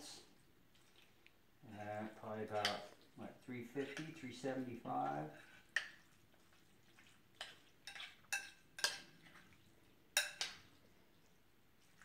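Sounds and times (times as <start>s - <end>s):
spoon clinking in ceramic dish: 7.8s - 9.0s, 10.2s - 10.6s.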